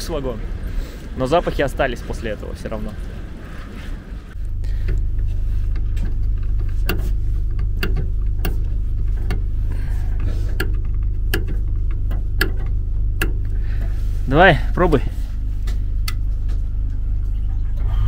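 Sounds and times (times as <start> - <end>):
low mechanical hum: 0.0 - 18.0
screwdriver clicks: 6.0 - 9.5, 10.6 - 13.5.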